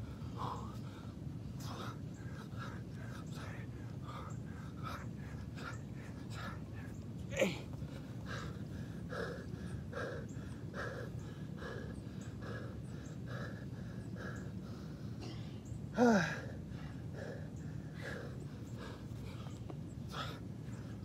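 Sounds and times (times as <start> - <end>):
man panting: 0.0 - 21.0
man groaning exhale: 16.0 - 16.5.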